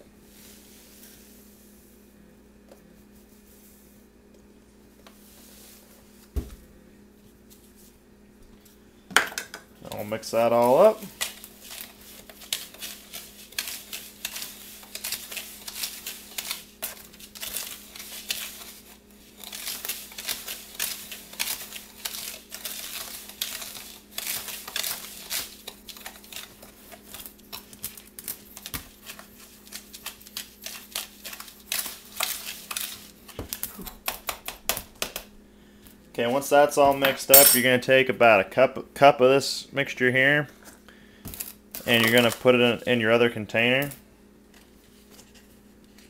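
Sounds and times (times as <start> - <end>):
spoon scratching gritty powder: 11.4 - 27.7.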